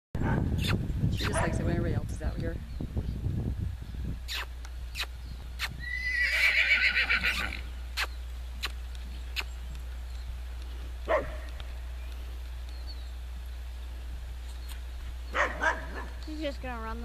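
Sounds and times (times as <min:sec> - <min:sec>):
horse whinnying: 0:04.3 - 0:08.1.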